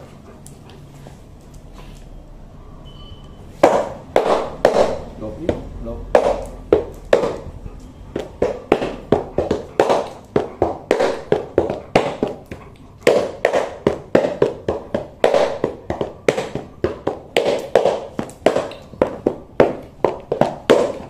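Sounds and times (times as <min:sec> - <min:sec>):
shoe soles slapped together: 0:08.2 - 0:21.0.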